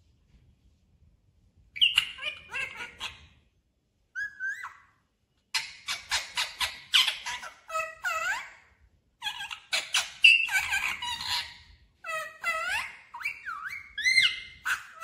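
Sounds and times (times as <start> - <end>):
parakeet squawking: 1.8 - 3.4, 4.2 - 4.9, 5.5 - 15.0.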